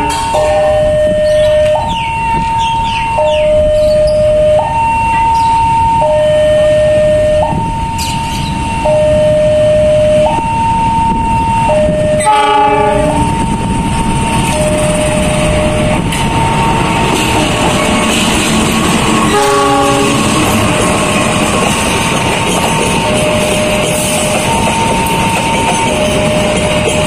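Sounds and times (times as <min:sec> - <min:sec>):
locomotive horn: 0:00.0 - 0:01.9, 0:08.9 - 0:13.5, 0:19.2 - 0:20.6
level crossing alarm two tones: 0:00.0 - 0:13.7, 0:14.5 - 0:16.1, 0:23.0 - 0:27.0
diesel locomotive rumble: 0:00.0 - 0:27.0.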